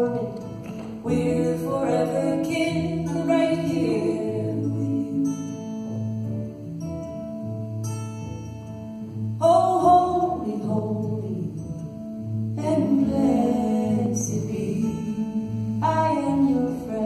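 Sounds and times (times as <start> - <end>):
upright bass walking line: 0.0 - 5.2
person singing: 0.0 - 5.8
acoustic guitar: 0.0 - 17.0.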